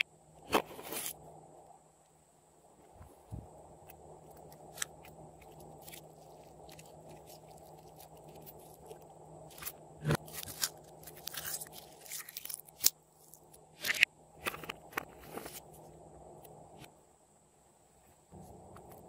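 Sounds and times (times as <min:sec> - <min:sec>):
sticky slime squishes: 0:04.4 - 0:14.0.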